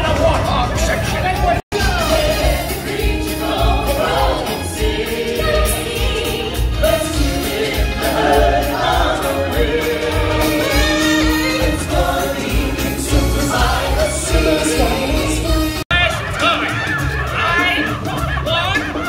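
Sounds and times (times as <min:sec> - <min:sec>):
steady drumbeat: 0:00.0 - 0:19.0
choir singing: 0:01.8 - 0:15.8.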